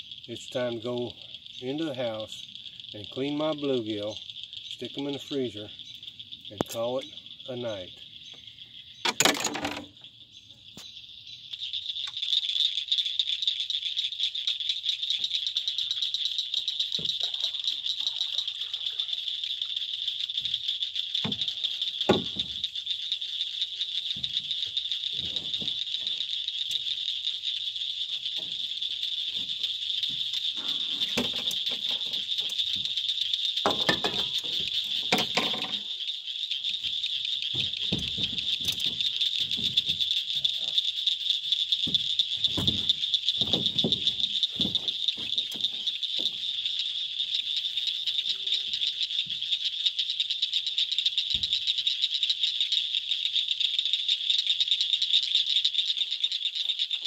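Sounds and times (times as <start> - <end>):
insects calling: 0.0 - 57.0
wooden knocks and rustles: 9.0 - 9.9, 22.1 - 22.6, 24.1 - 26.2, 29.3 - 32.9, 33.6 - 35.8, 37.5 - 40.5, 41.8 - 46.5.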